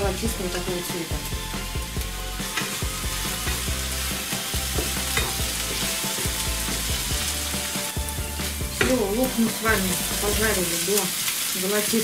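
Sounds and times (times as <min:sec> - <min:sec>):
onion sizzling in frying pan: 0:00.0 - 0:12.0
spatula knocking on pan: 0:04.7 - 0:06.3.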